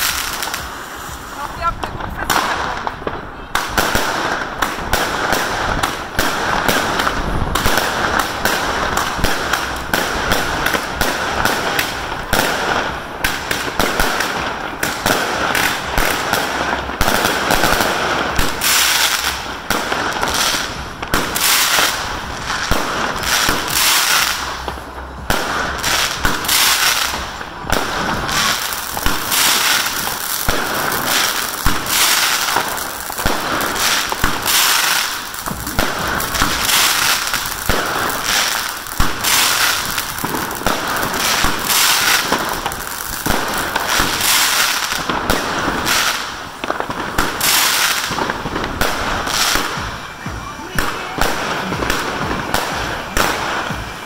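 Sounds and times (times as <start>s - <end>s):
steady hiss: 0.0s - 4.9s
fireworks bangs and crackling: 0.0s - 54.0s.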